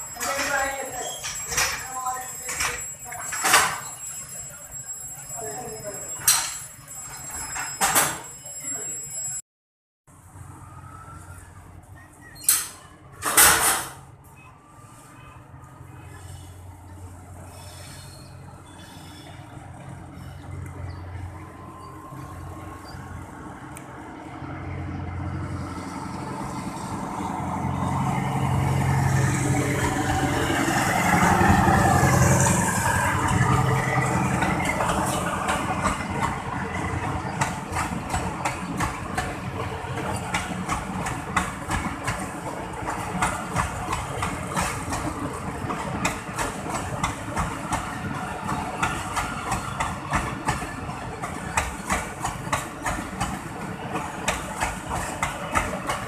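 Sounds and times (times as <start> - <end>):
locomotive engine: 14.9 - 56.0
train wheels clacking: 32.1 - 56.0.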